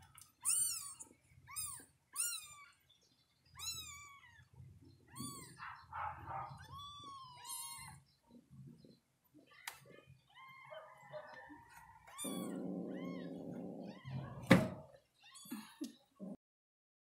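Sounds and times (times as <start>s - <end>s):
kittens mewing: 3.6s - 8.0s, 12.0s - 16.3s.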